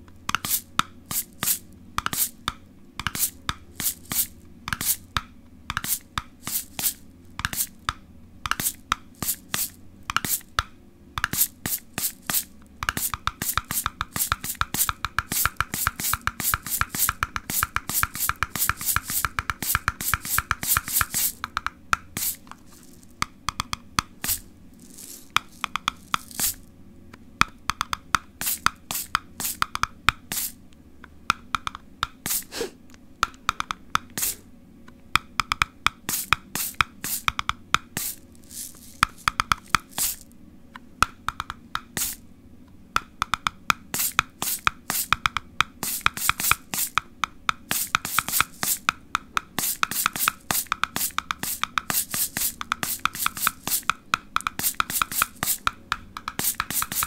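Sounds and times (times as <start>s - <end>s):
tapping on objects: 2.0s - 26.7s, 35.2s - 40.2s, 41.0s - 42.1s, 43.0s - 57.0s.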